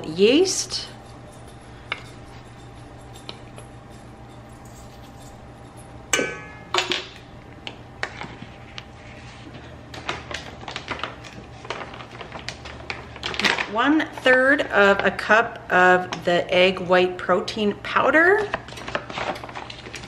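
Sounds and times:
spoon clinking on metal bowl: 0.8s - 6.8s.

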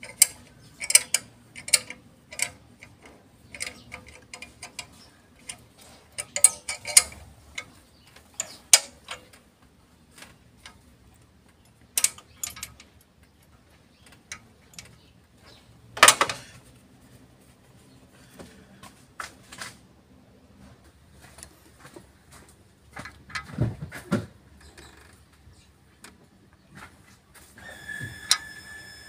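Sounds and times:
metal tools clinking on engine: 0.0s - 9.3s, 11.6s - 15.1s.

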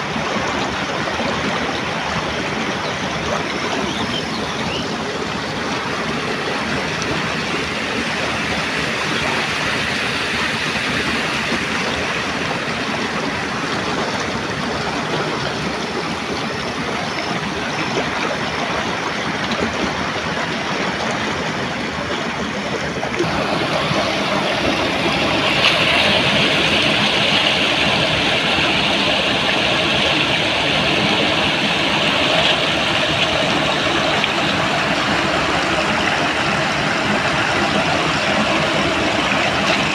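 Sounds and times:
floodwater gushing through a gap: 0.0s - 39.9s.

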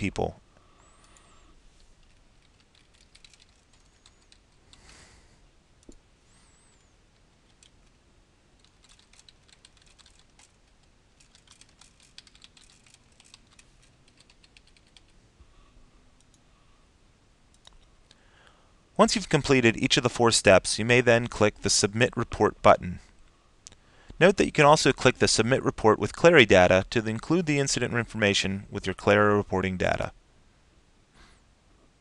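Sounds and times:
typing on computer keyboard: 2.0s - 4.9s, 7.4s - 8.0s, 8.6s - 15.2s.

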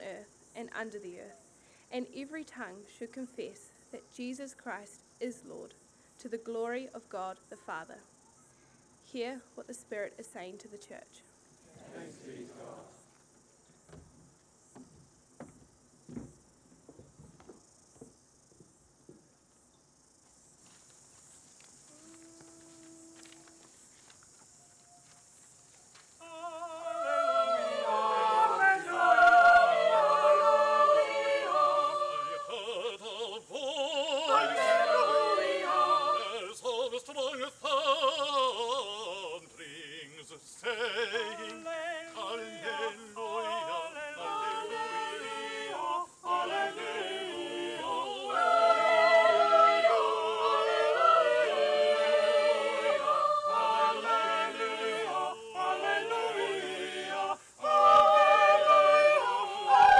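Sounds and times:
choir singing in parts: 11.7s - 13.0s, 26.2s - 59.9s.

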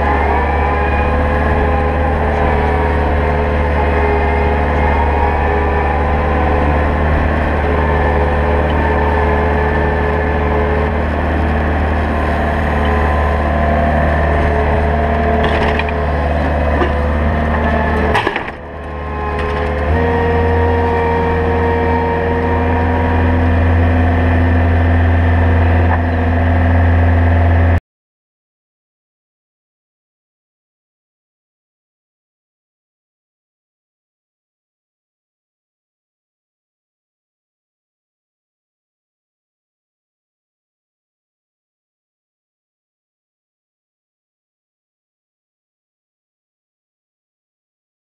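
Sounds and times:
diesel engine running: 0.0s - 27.8s.

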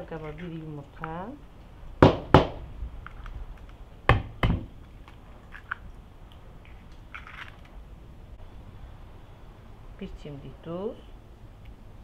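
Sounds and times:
eggshell clicks and crunches: 4.8s - 7.8s.

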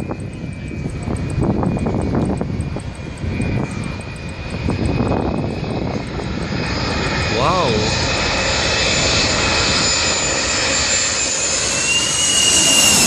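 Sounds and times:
jet engines whining: 0.0s - 13.0s
low gusty rumble: 0.0s - 13.0s.

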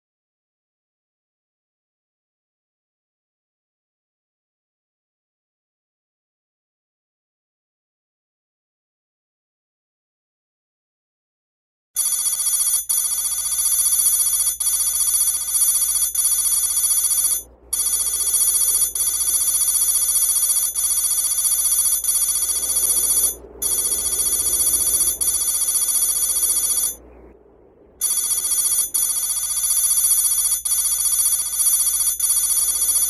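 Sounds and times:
electronic ringing tone: 12.0s - 27.2s, 28.0s - 33.0s.

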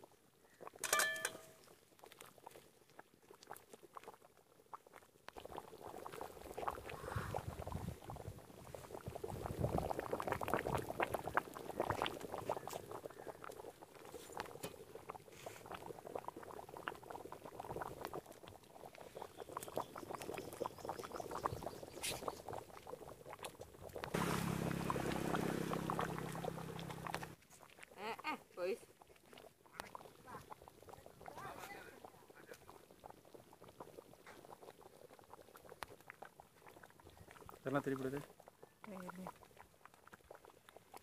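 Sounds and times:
thick gravy boiling and bubbling: 0.0s - 41.0s.

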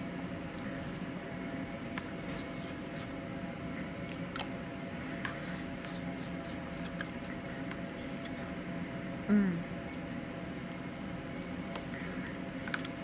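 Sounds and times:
low background hum: 0.0s - 13.0s
soft eating sounds: 0.0s - 13.0s.

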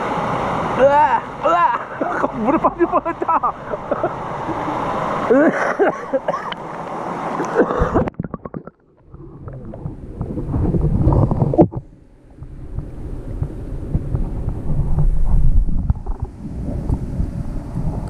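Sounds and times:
low rumbling water: 0.0s - 18.0s
child laughing: 1.4s - 6.7s.

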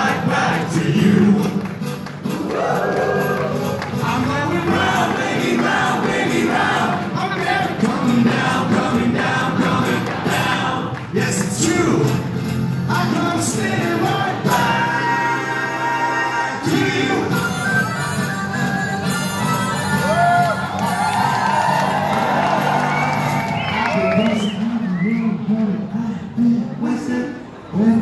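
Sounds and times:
man singing: 0.0s - 1.6s, 3.9s - 17.6s, 24.4s - 28.0s
voices singing together: 0.0s - 17.7s
guitars: 0.0s - 25.2s.

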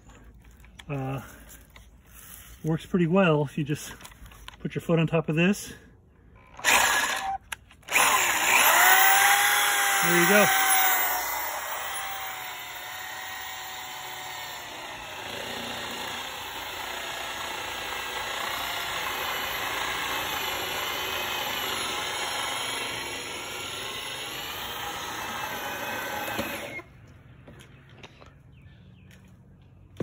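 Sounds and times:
power drill whining: 6.3s - 26.9s.

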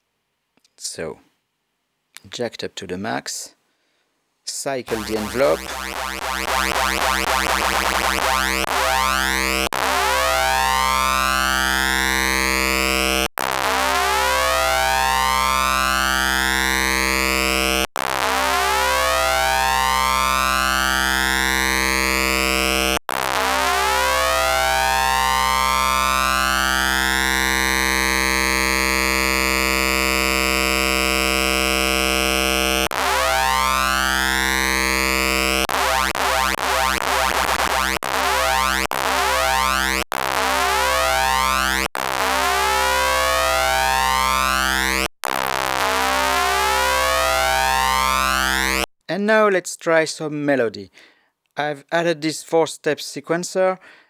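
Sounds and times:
buzzy synthesizer tone sweeping: 4.9s - 48.9s.

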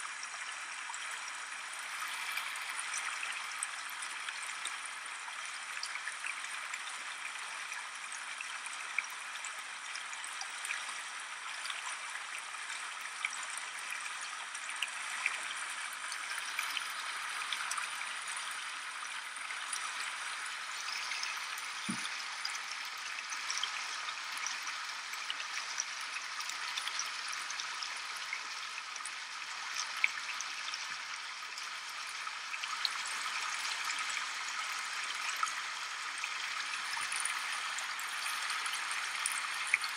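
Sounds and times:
low thump: 21.9s - 22.1s.

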